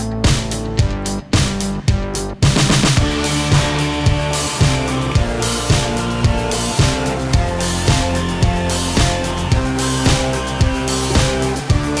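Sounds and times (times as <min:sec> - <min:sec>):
steady drum beat: 0:00.0 - 0:12.0
held instrumental notes: 0:03.0 - 0:12.0.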